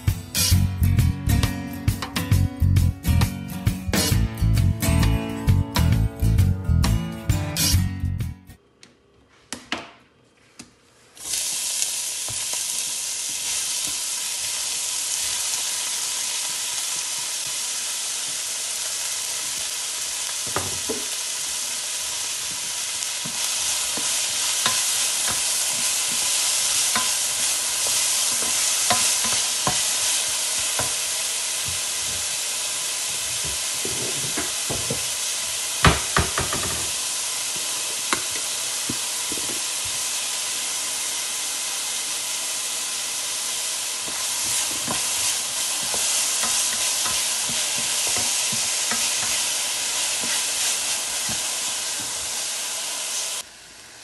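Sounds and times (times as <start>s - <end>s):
vegetables sizzling in hot oil: 11.2s - 54.0s.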